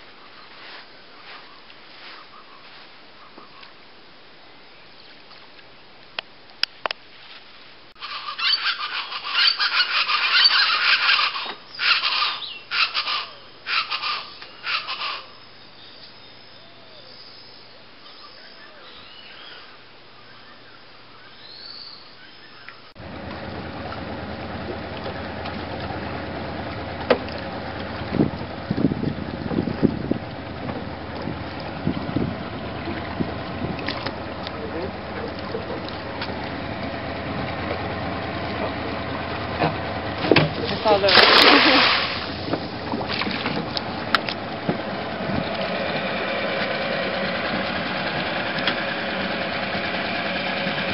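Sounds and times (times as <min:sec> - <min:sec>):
birds calling loudly: 0:08.0 - 0:23.0
low steady background noise: 0:10.9 - 0:28.1
boat engine low rumble: 0:23.0 - 0:50.9
wind on microphone: 0:27.8 - 0:35.8
low thumps: 0:42.1 - 0:45.5.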